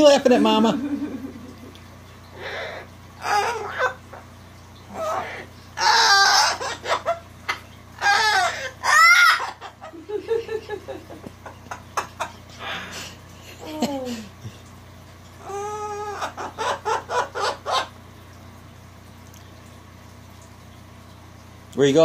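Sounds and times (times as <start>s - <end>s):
cockatoo laugh-like calls: 2.4s - 4.2s, 4.9s - 14.3s, 15.4s - 17.9s
cockatoo squawk: 2.4s - 4.3s, 4.9s - 9.9s, 12.5s - 13.0s, 15.4s - 18.0s.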